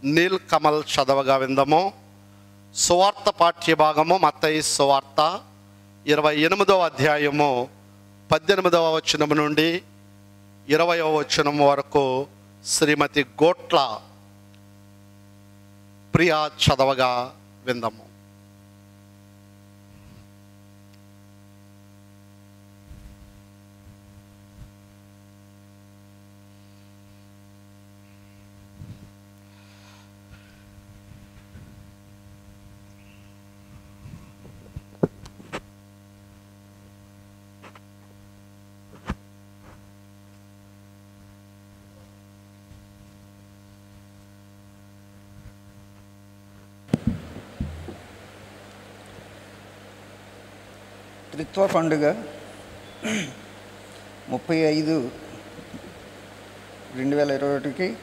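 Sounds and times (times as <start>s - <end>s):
electrical mains hum: 0.0s - 58.0s
microphone being handled: 22.8s - 24.8s, 28.6s - 29.2s, 30.4s - 32.8s, 33.6s - 35.8s, 42.0s - 43.3s, 45.2s - 51.8s, 55.0s - 56.9s
sharp clicks and knocks: 46.9s - 48.0s.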